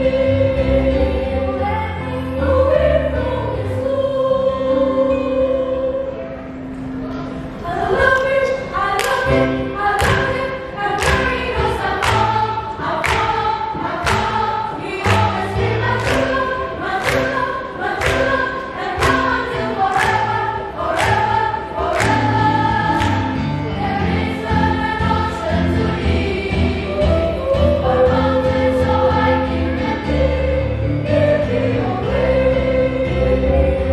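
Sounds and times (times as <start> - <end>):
children's choir singing: 0.0 - 33.9
low instrumental accompaniment: 0.0 - 33.9
hand claps: 10.0 - 10.4, 11.0 - 15.4, 16.0 - 23.4.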